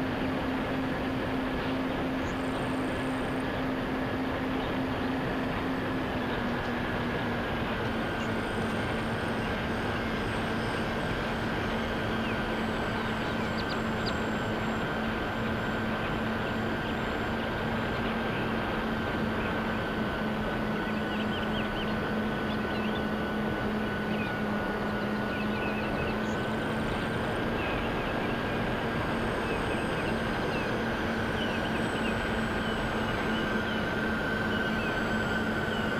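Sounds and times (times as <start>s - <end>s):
model plane motors droning: 0.0s - 35.9s.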